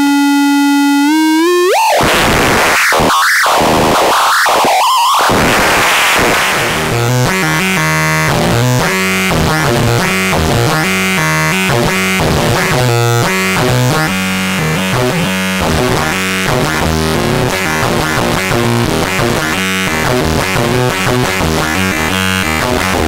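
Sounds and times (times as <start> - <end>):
fast synthesizer note sequence: 0.0 - 15.8
low bass line: 5.3 - 23.0.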